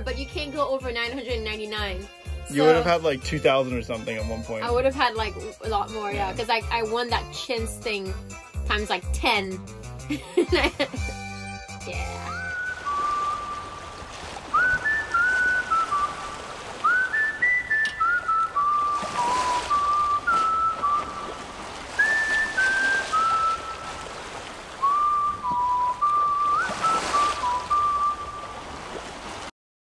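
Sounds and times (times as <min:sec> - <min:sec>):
whistled tune: 0:01.7 - 0:06.4, 0:11.0 - 0:28.6.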